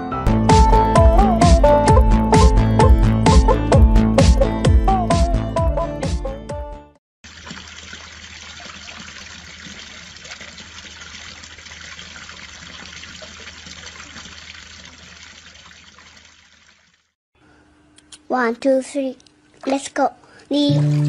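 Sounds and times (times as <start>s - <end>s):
music: 0.0s - 7.0s, 20.6s - 21.0s
fountain water splashing: 7.2s - 17.1s.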